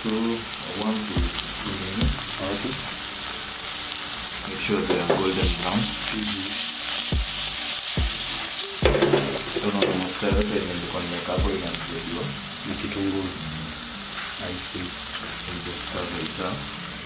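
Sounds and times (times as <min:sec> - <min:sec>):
onions sizzling in a frying pan: 0:00.0 - 0:17.0
pan tossing thumps: 0:04.9 - 0:05.7, 0:08.8 - 0:10.6.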